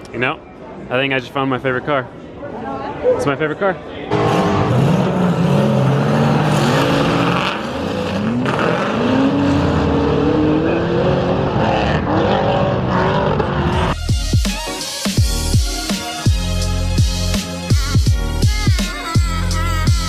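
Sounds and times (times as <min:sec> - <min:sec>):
car engines revving: 0:04.1 - 0:14.0.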